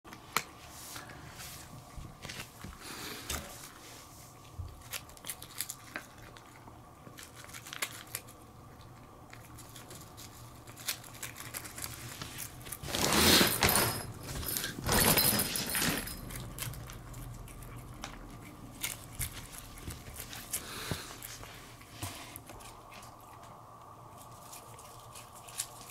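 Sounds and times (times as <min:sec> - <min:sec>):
cats chewing and licking: 0:04.4 - 0:13.4, 0:16.2 - 0:25.9
rustling: 0:09.3 - 0:25.9.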